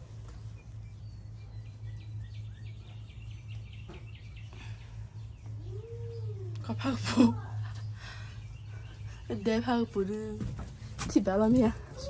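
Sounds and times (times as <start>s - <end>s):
faint bird chirping: 0.0s - 10.4s
steady low hum: 0.0s - 12.0s.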